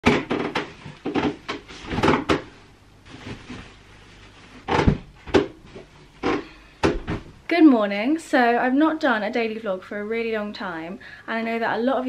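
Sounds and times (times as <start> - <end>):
furniture and cushions knocking: 0.0 - 2.6, 4.6 - 7.4
loud thud: 6.3 - 7.4.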